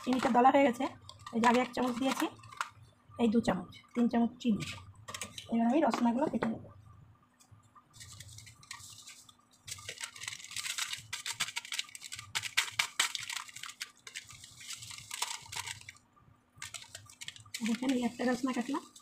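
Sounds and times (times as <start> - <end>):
plastic sachet crinkling: 0.0 - 2.9, 7.9 - 16.0, 16.6 - 19.0.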